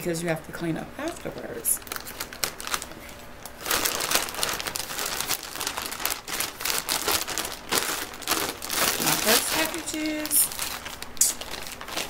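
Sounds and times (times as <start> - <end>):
plastic mailer bag crinkling and tearing: 1.0 - 12.0.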